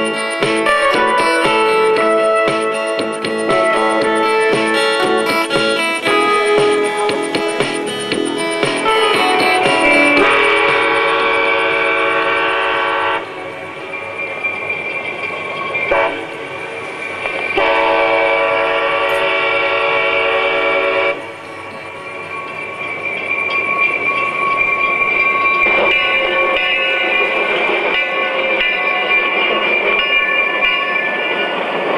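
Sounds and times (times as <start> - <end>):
train rumbling: 0.0 - 31.9
locomotive horn blasts: 8.8 - 13.4, 15.9 - 16.4, 17.6 - 21.5.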